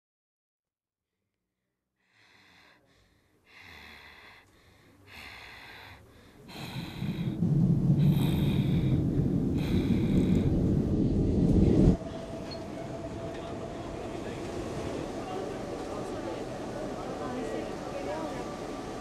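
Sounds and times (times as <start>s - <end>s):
person breathing: 2.0s - 11.3s
low rumble: 6.4s - 19.0s.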